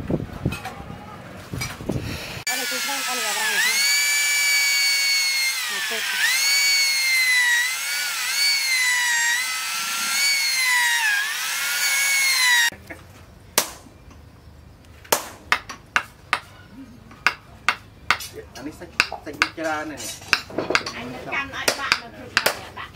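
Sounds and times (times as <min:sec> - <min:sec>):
electric drill whining: 0:02.4 - 0:12.7.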